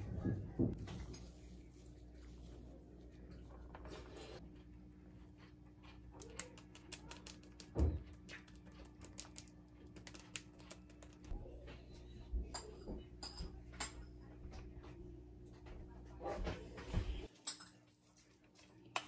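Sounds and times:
dishes clinking: 0:12.4 - 0:14.3.

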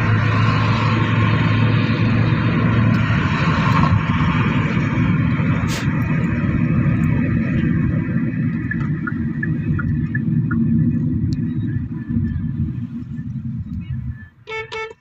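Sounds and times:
car tyres and engine rumble: 0:00.0 - 0:15.0.

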